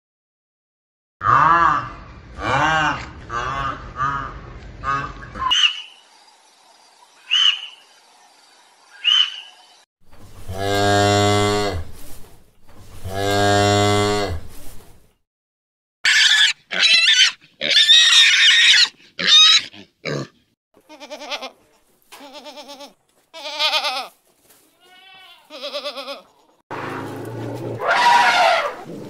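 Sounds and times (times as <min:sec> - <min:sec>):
cow mooing: 0:01.2 - 0:04.3, 0:10.5 - 0:11.9, 0:13.1 - 0:14.4
pig squealing: 0:01.2 - 0:06.0, 0:07.3 - 0:07.8, 0:09.0 - 0:09.5, 0:16.0 - 0:20.4, 0:26.8 - 0:29.0
short high calls: 0:07.2 - 0:07.8, 0:09.0 - 0:09.5.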